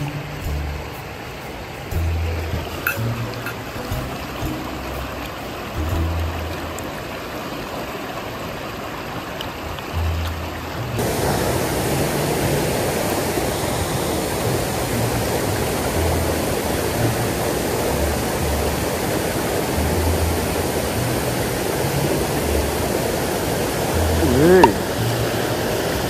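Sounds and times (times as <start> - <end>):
water pouring over a weir: 0.0 - 26.0.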